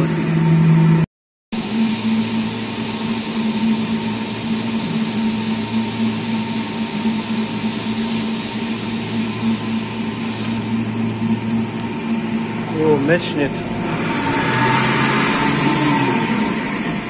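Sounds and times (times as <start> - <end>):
lathe machine hum: 1.6 - 17.0
cutting hiss: 6.2 - 17.0.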